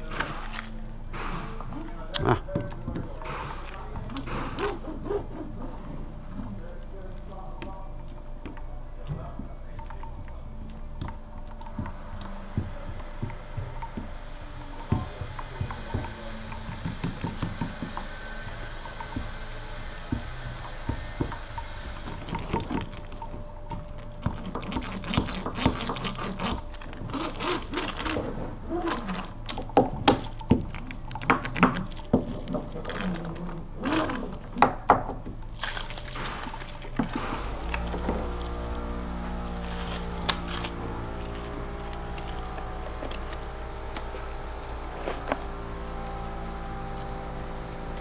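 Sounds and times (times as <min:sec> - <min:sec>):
roller squishing wet resin: 0:00.0 - 0:48.0.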